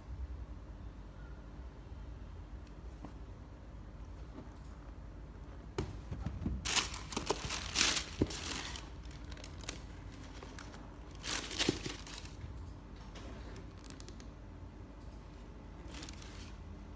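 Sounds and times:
tissue paper crinkling: 6.6 - 12.4, 15.9 - 16.6.

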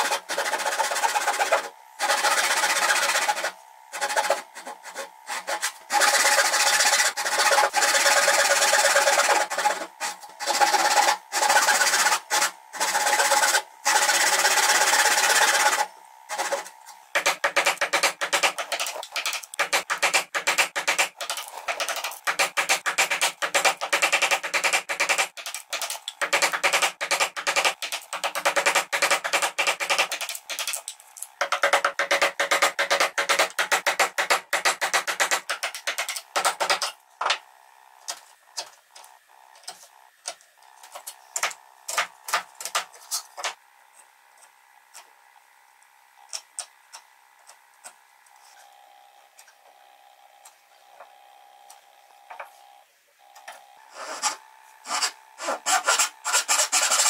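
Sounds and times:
chisel paring wood: 31.4 - 36.9.

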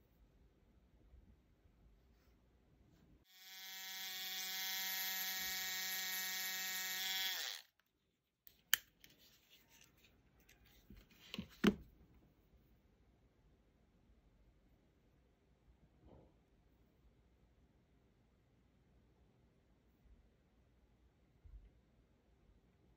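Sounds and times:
small electric motor whirring: 3.3 - 7.7.

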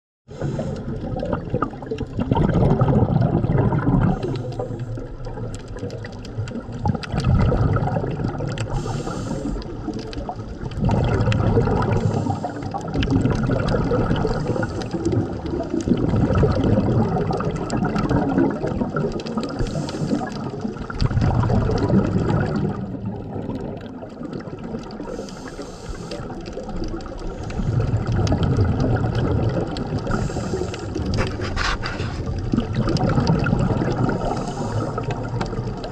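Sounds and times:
scuba regulator bubbling exhale: 0.3 - 35.9
faint regulator hiss: 8.7 - 9.7, 25.0 - 26.4.

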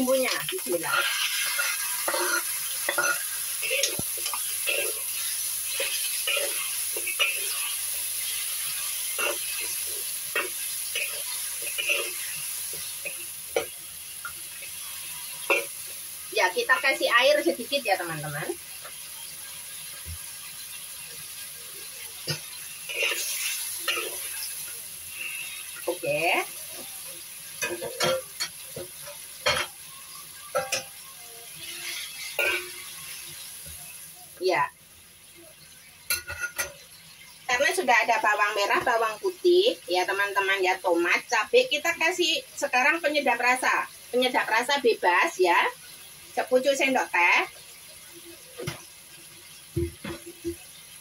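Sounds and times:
food sizzling: 0.0 - 51.0
metal spatula scraping wok: 0.1 - 13.8, 22.2 - 26.5, 30.4 - 33.4.

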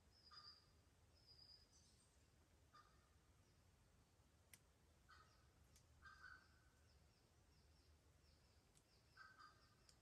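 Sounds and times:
bird calling: 0.0 - 2.0, 2.7 - 3.2, 5.1 - 10.0.

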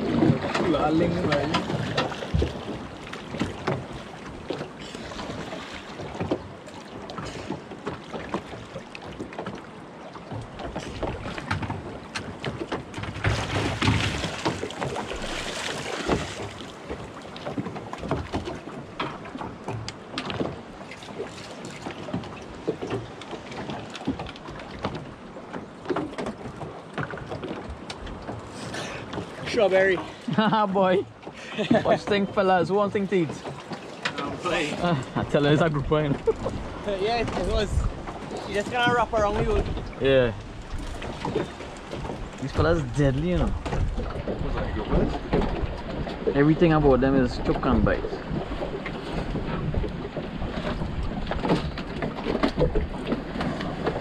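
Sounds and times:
knocks and clicks on boat: 0.0 - 54.0
water lapping against hull: 0.0 - 54.0.

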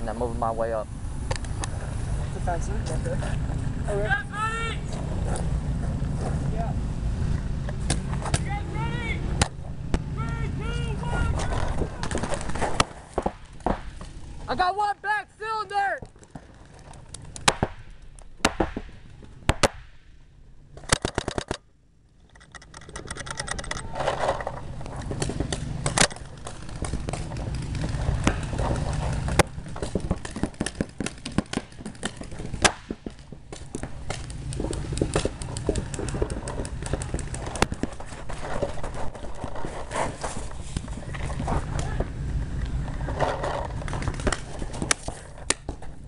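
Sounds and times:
handling noise: 7.3 - 14.7, 20.7 - 46.0
paintball marker shots popping: 7.7 - 8.5, 9.4 - 10.1, 11.4 - 14.3, 16.0 - 20.1, 20.8 - 21.7, 24.8 - 40.4, 43.8 - 45.9.

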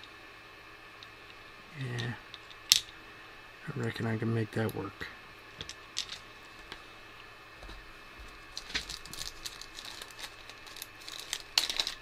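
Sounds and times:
hands handling small plastic parts: 5.6 - 6.8, 8.5 - 12.0.

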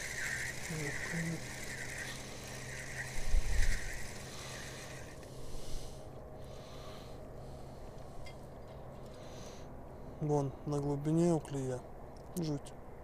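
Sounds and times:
fishing reel gears whirring: 0.0 - 5.8.

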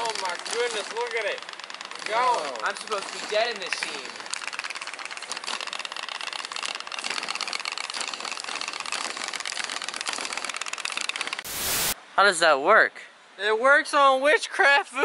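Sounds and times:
toy steam boat engine clicking: 0.0 - 11.4
television static hiss: 11.4 - 15.0.

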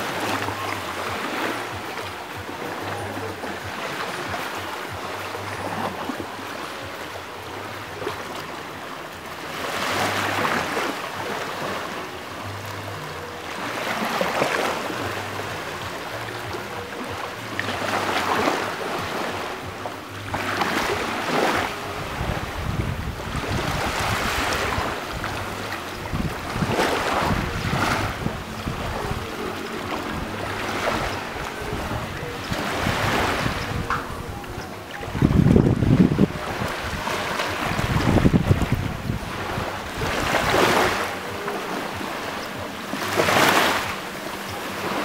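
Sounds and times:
wind rumble on microphone: 14.7 - 44.6.

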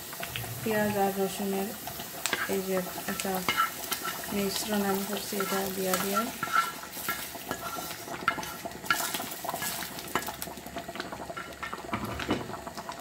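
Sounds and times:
faint oil sizzle: 0.0 - 13.0
wooden spatula scraping metal pot: 2.3 - 10.3.

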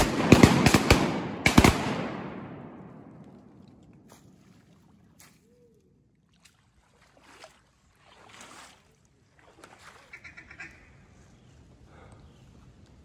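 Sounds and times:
duck quacking: 10.1 - 11.0.

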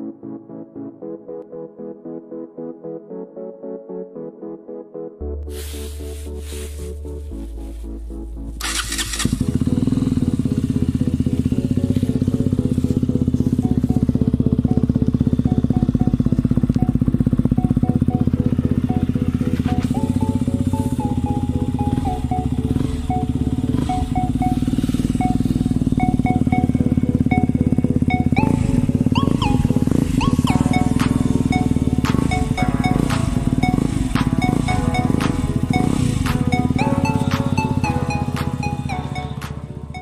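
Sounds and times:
motorcycle idling: 8.5 - 40.0.

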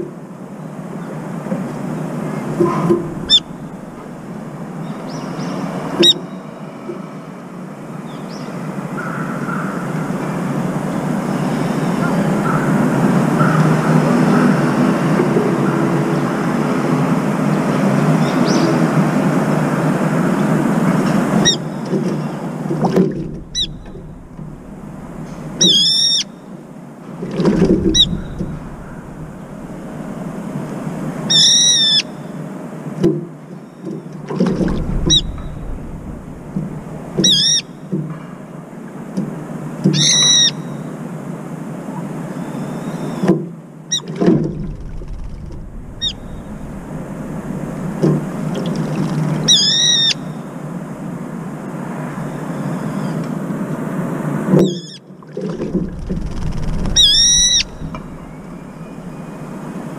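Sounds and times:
low background noise: 0.0 - 59.9
bird giving shrill squealing calls: 23.5 - 24.1, 25.6 - 26.4, 49.5 - 50.2, 56.8 - 59.4.

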